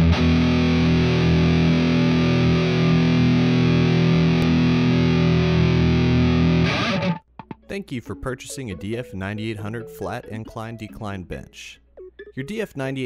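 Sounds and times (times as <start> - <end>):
distorted electric guitar chord: 0.0 - 7.2.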